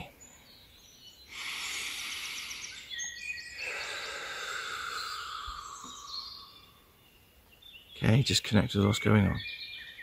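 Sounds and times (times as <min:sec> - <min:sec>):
birds singing: 0:00.0 - 0:10.0.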